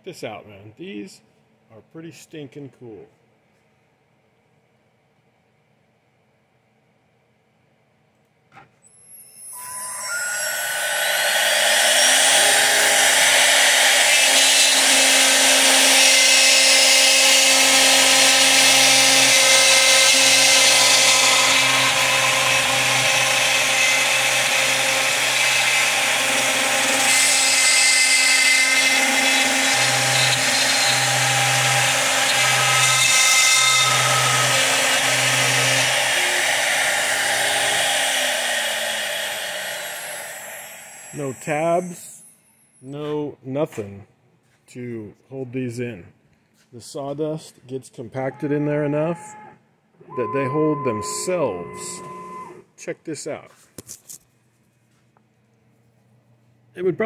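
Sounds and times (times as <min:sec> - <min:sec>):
router spindle whine: 0:08.9 - 0:41.3, 0:50.1 - 0:52.6
bit cutting through plywood: 0:09.7 - 0:40.7, 0:50.2 - 0:52.5.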